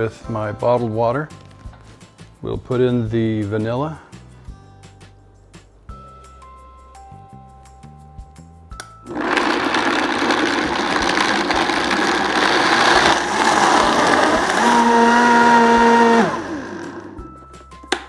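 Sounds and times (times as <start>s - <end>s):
blender blending: 9.1s - 17.3s
steady motor whine: 9.1s - 17.3s.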